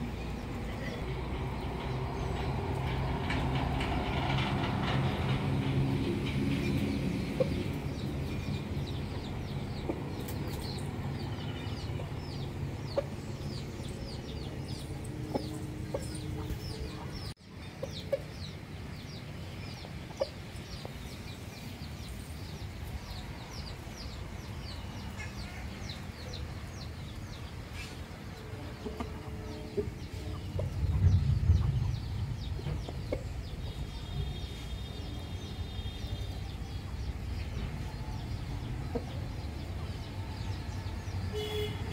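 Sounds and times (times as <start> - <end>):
chickens clucking: 0.3 - 21.8, 25.0 - 34.1, 36.7 - 41.2
low rumble: 29.9 - 34.3.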